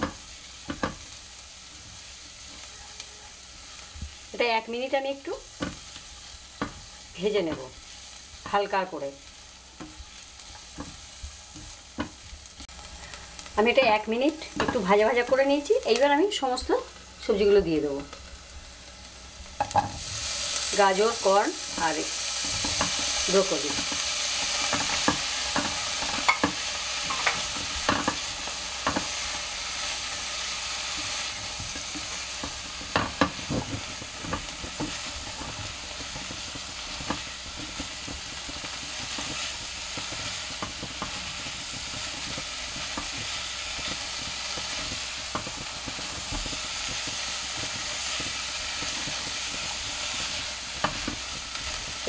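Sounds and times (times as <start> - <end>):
vegetables sizzling in butter: 0.0 - 52.0
spatula knocking and scraping pot: 6.6 - 7.7, 21.8 - 29.4, 30.9 - 52.0.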